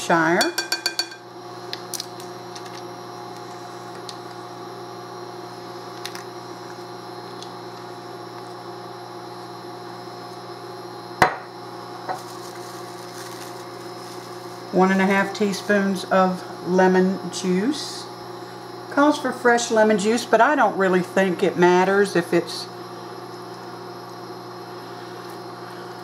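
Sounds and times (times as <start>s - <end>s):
induction cooktop hum: 0.0s - 26.0s.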